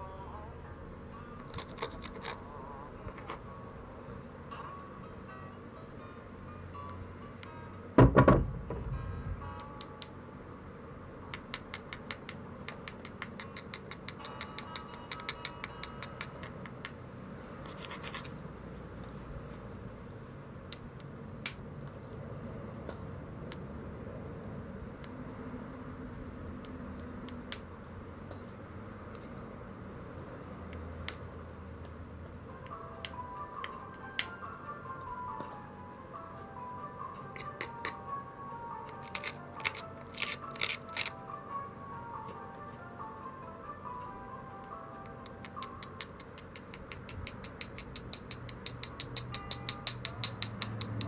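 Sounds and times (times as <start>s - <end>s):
stone-on-stone clicks: 1.4s - 2.4s, 38.8s - 41.2s.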